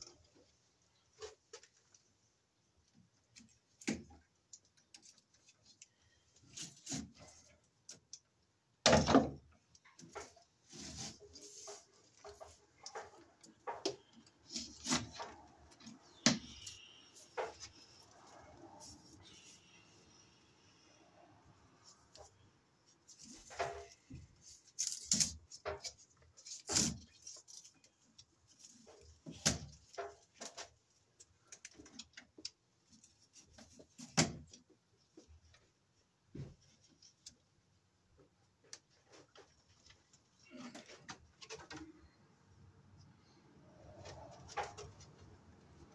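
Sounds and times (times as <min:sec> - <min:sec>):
cable clicks and rustles: 0:23.1 - 0:35.6.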